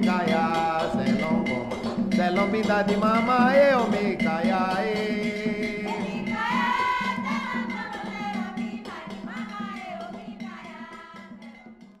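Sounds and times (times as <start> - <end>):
drums: 0.0 - 11.8.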